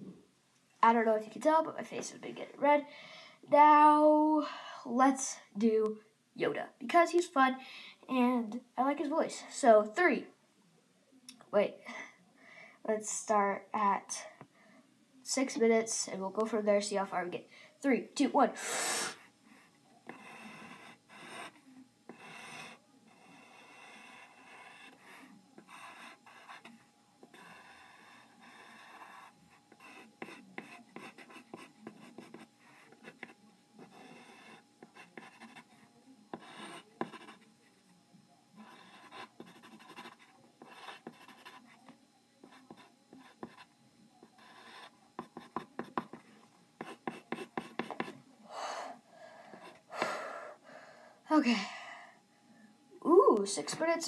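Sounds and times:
pencil scratching on paper: 19.1s - 37.5s, 38.6s - 48.2s.

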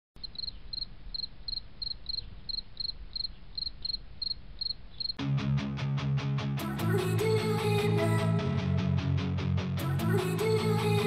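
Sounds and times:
insect chirping: 0.2s - 5.2s
strummed guitar music with beat: 5.2s - 11.0s.

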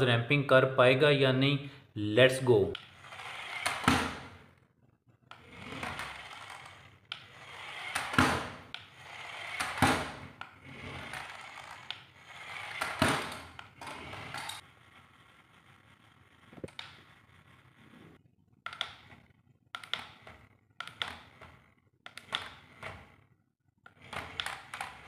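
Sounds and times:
toy airplane motor whirring: 2.8s - 4.4s, 5.3s - 17.9s
plastic wheels scraping on tiles: 2.8s - 4.6s, 5.2s - 18.2s, 18.8s - 25.0s.

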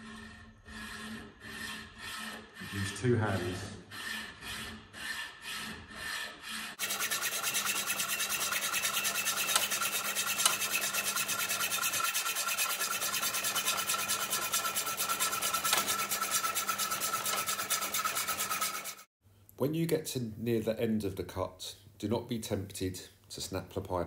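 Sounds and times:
hacksaw cutting steel pipe: 0.0s - 19.1s.

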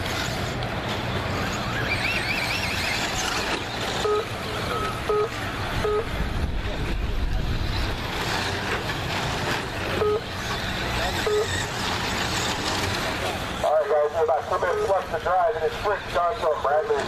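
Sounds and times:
rc trucks racing: 0.0s - 17.0s
short electronic beeps: 4.0s - 6.2s, 10.0s - 10.4s, 11.2s - 11.6s.

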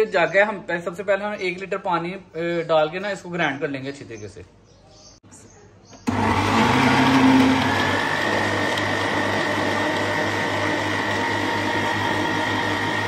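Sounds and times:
blender motor hum: 6.1s - 13.0s
blender whine: 6.1s - 13.0s.

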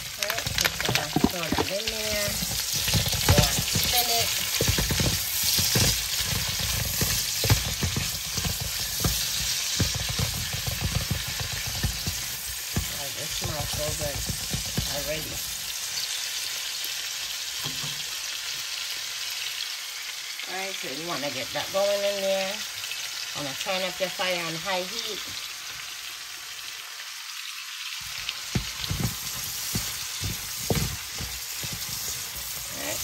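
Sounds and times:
food sizzling in oil: 0.0s - 33.0s
spoon knocking and scraping pot: 0.2s - 15.5s, 17.6s - 18.1s, 28.1s - 33.0s.

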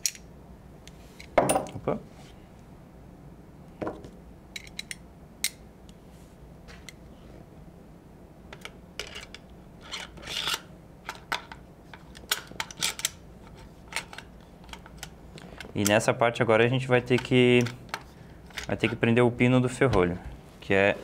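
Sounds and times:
metal parts clicking and clinking: 0.0s - 0.3s, 8.5s - 16.0s.

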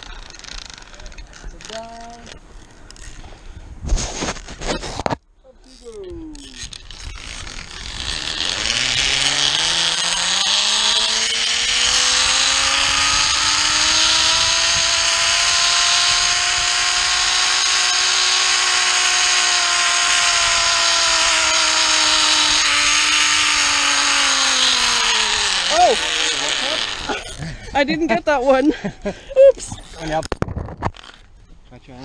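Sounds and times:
zipline pulleys whining: 0.0s - 1.9s, 2.6s - 3.2s, 5.7s - 27.6s.

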